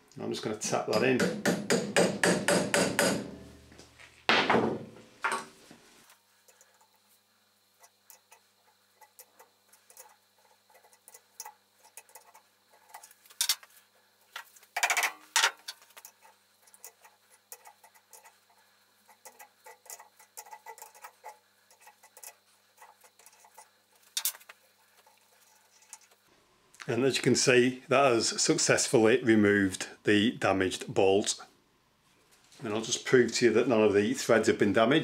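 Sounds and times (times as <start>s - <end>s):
spanner clicking and scraping: 14.4s - 26.1s.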